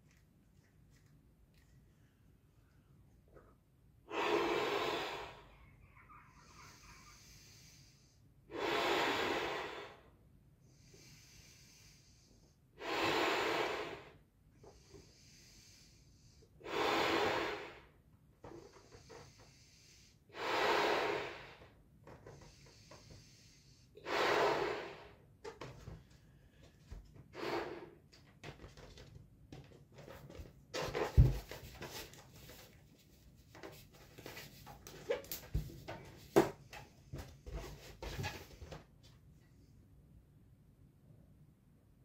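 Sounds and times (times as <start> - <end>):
blowing into a balloon: 4.1 - 5.5, 8.5 - 10.0, 12.8 - 14.1, 16.6 - 17.9, 20.3 - 21.7, 24.0 - 25.2, 27.3 - 28.0
rubber balloon squeaks and rubs: 37.8 - 38.8.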